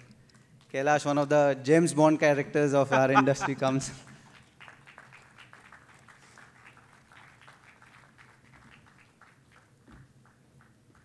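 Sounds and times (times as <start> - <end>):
low hall hum: 0.0 - 11.0
faint scattered applause: 3.2 - 11.0.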